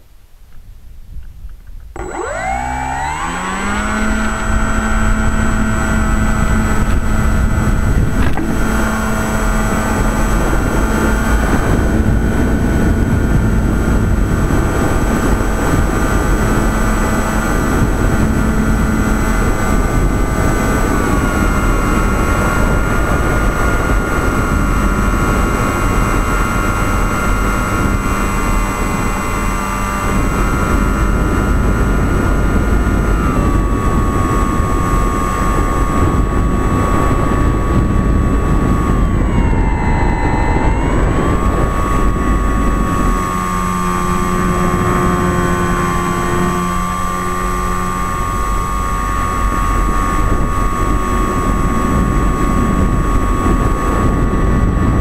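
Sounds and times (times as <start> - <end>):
rushing wind: 0.0 - 55.0
model airplane motor whining: 1.5 - 55.0.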